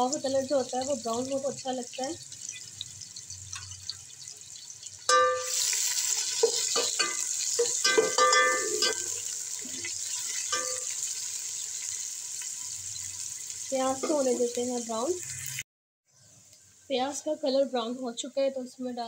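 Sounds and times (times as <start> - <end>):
onions sizzling in pot: 0.0 - 15.6
spoon scraping metal pot: 6.3 - 10.9.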